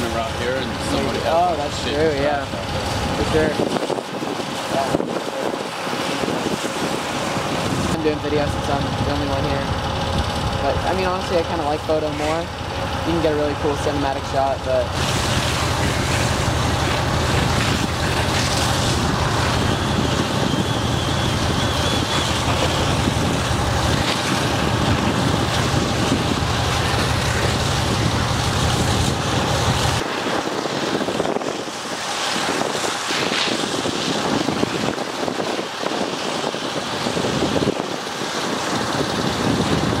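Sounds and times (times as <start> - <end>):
engine idling: 0.0 - 30.0
fire hose spraying water: 0.0 - 40.0.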